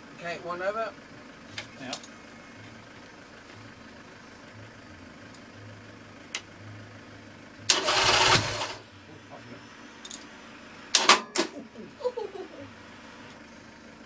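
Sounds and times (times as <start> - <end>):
motorcycle engine burst: 7.7 - 8.8.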